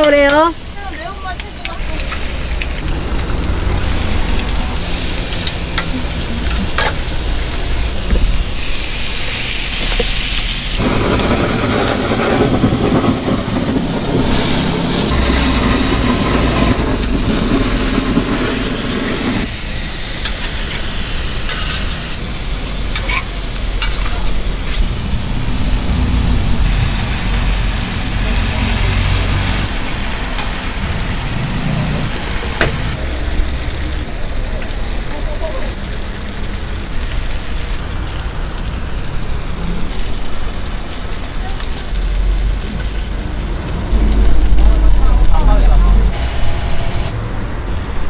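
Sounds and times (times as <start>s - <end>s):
food sizzling on a griddle: 0.0s - 48.0s
blowtorch flame rushing: 2.3s - 33.6s
spatula and tongs scraping: 5.8s - 7.2s, 21.5s - 22.0s, 22.9s - 24.9s.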